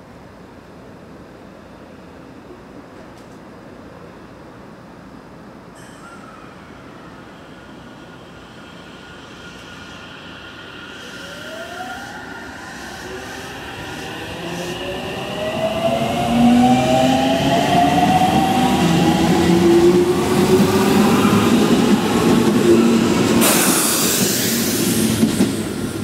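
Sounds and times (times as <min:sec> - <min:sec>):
loud hiss: 0:23.4 - 0:25.8.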